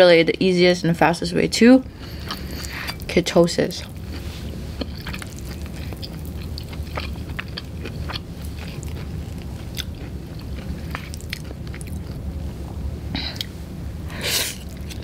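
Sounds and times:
low steady hum: 0.0s - 15.0s
chewing noodles: 2.1s - 3.1s, 3.8s - 12.2s.

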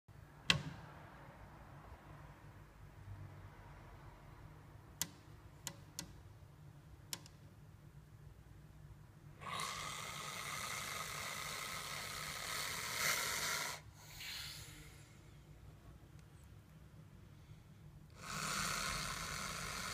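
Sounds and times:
sharp clicks: 5.0s - 6.2s, 7.1s - 7.4s
snake hissing: 9.4s - 15.1s, 18.2s - 19.9s.

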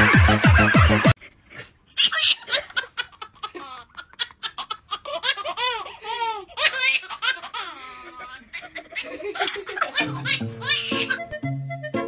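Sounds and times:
high-pitched laughter: 0.0s - 1.2s, 6.7s - 11.2s.

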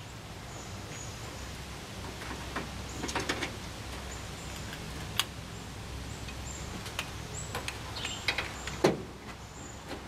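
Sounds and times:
bird chirping: 5.5s - 9.9s.

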